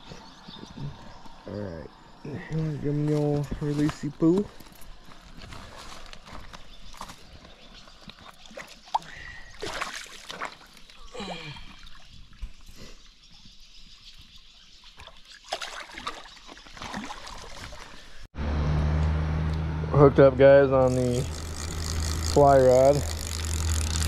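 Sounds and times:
shallow water splashing: 8.4 - 11.1, 15.0 - 18.2
steady low hum: 18.4 - 24.0.

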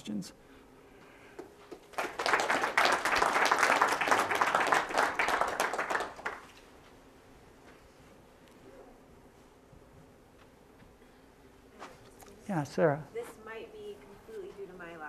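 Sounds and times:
audience applause: 1.7 - 6.6.

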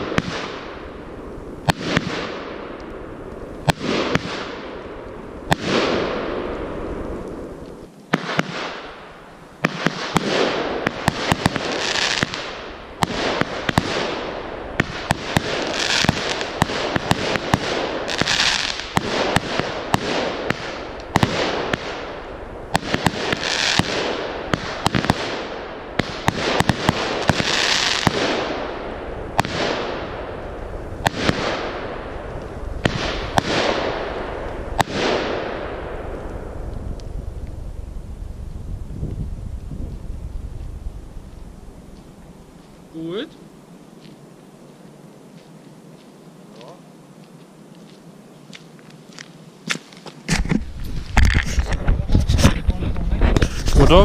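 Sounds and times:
firework bangs with hiss: 0.0 - 45.5, 49.6 - 54.0.

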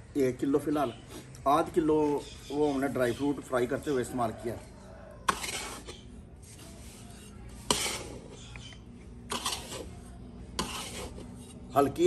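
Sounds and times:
metal ladle scraping iron pan: 5.2 - 12.0.

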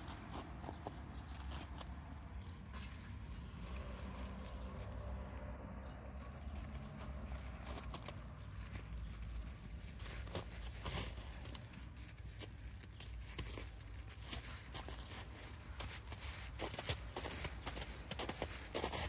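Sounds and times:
crunching snow underfoot: 6.3 - 19.0.

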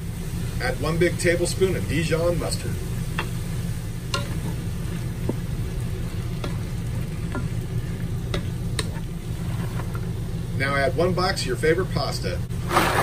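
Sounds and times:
meat sizzling in a pot: 0.0 - 10.8.

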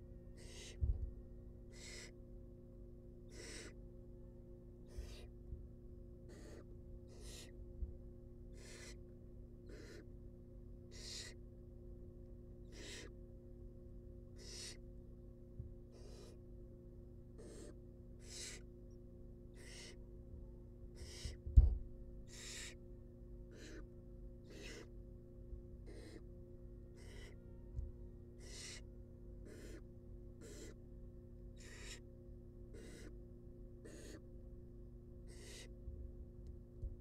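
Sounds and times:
steady low hum: 0.0 - 37.0
owl nestling rasping hiss: 0.4 - 0.8, 1.7 - 2.2, 3.3 - 3.8, 4.8 - 5.3, 6.3 - 7.6, 8.5 - 9.0, 9.7 - 10.1, 10.9 - 11.4, 12.7 - 13.1, 14.4 - 14.8, 15.9 - 16.4, 17.4 - 18.7, 19.6 - 20.0, 21.0 - 21.4, 22.2 - 22.8, 23.5 - 24.9, 25.9 - 26.2, 27.0 - 27.4, 28.4 - 28.8, 29.4 - 29.8, 30.4 - 30.8, 31.6 - 32.1, 32.7 - 33.2, 33.8 - 34.2, 35.3 - 35.7
thump: 21.5 - 21.9.

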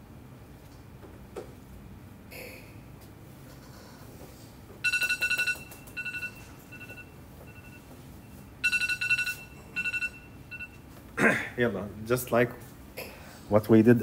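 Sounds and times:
electronic phone ringtone: 4.8 - 10.8.

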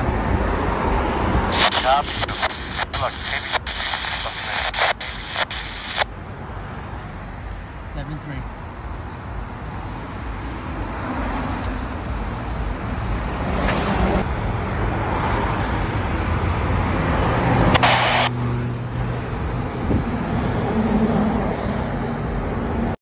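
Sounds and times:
short bursts of hiss: 1.5 - 6.0, 17.8 - 18.3.

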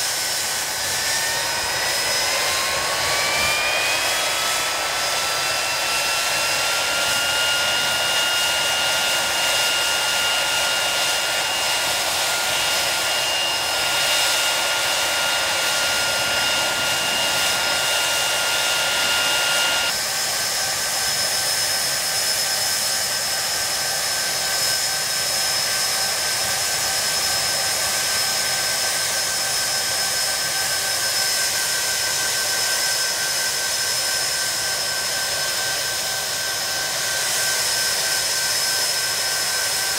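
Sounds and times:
jet engine whine: 0.0 - 39.9.

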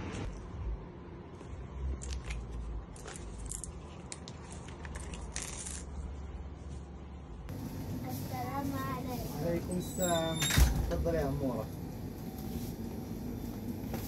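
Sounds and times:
paper banknote crinkling: 3.0 - 6.1.

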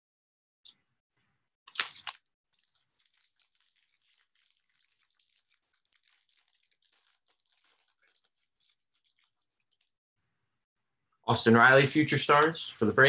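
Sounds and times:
cards crackling and sliding: 1.7 - 9.9
trading cards rustling: 1.7 - 9.9.

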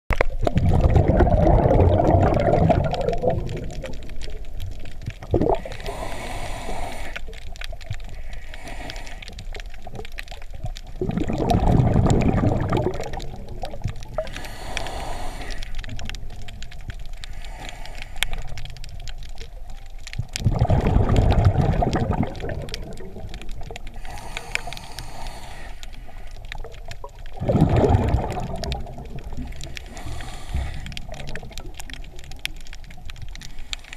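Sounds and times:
gurgling exhaust bubbles: 0.2 - 4.5, 5.2 - 5.7, 10.9 - 14.3, 20.3 - 23.8, 27.1 - 29.9
regulator hiss on inhale: 5.6 - 9.9, 14.1 - 16.4, 17.0 - 18.8, 23.8 - 26.7, 29.4 - 31.5, 33.4 - 33.9.

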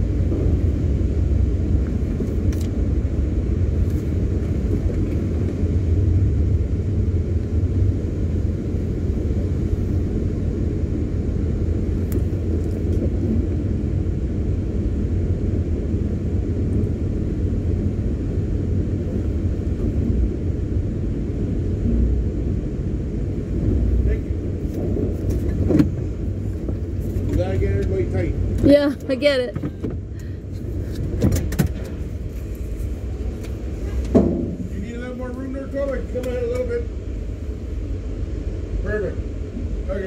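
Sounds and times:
van engine rumbling: 0.0 - 40.0.

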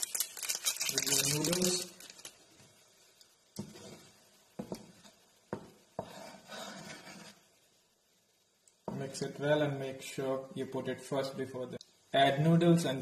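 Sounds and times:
spatula scraping pan bottom: 3.6 - 4.8, 6.0 - 7.5
wooden spatula knocking on pan: 4.6 - 6.2.

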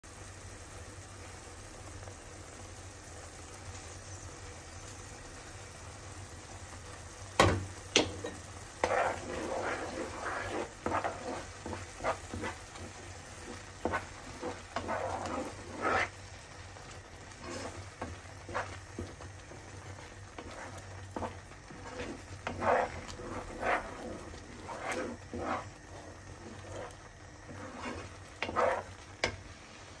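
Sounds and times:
sauce sizzling: 0.0 - 30.0
wooden spoon scraping pan: 8.0 - 30.0.

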